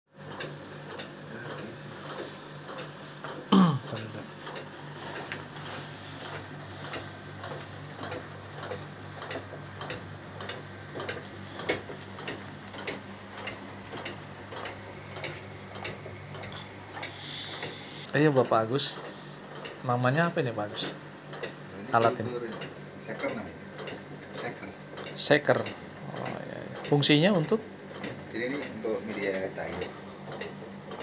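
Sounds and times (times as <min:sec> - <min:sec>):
shaker motor hum: 0:00.2 - 0:31.0
regular ticking: 0:06.2 - 0:31.0.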